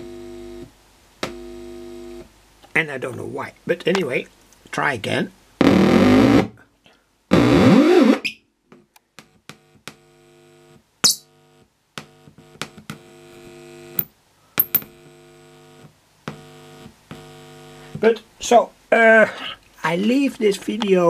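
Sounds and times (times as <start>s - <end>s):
buzzing mains hum: 0.0s - 2.4s, 7.3s - 19.1s.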